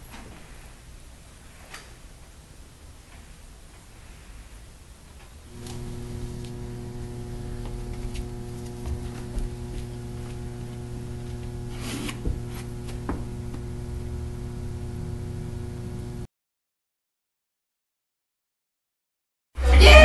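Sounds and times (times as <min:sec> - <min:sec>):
low electrical hum: 0:00.0 - 0:16.3.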